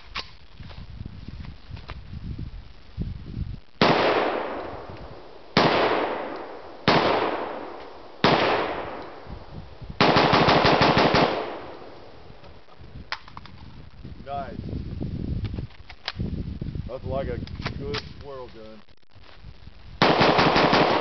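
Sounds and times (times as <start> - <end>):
rapid rifle fire: 3.8 - 4.6, 5.6 - 9.0, 10.0 - 11.8, 20.0 - 21.0
rifle shots with echo: 3.8 - 4.9, 5.6 - 9.3, 10.0 - 12.0, 20.0 - 21.0.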